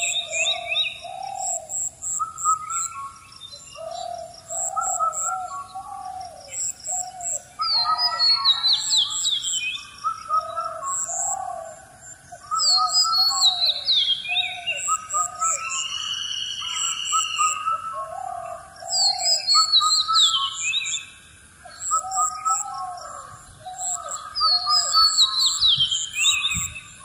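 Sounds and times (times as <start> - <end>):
low cooing call: 0.0 - 2.9, 3.8 - 9.2, 10.0 - 15.8, 16.6 - 20.0
birds chirping: 0.0 - 27.0.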